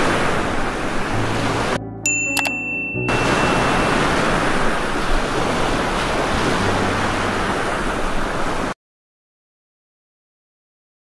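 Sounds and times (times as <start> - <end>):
heavy rain pouring: 3.3 - 8.8.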